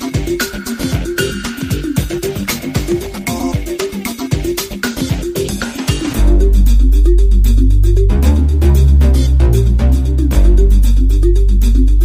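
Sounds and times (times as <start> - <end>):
light drumming: 0.0 - 6.8
short repeating electronic melody: 6.0 - 12.0
deep bass note: 6.2 - 12.0.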